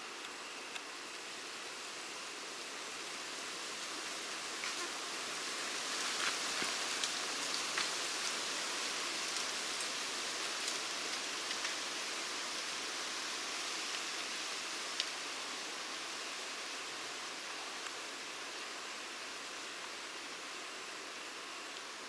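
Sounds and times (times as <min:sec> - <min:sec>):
high hiss of woodland background: 0:00.0 - 0:22.0
faint ticks: 0:13.9 - 0:15.2.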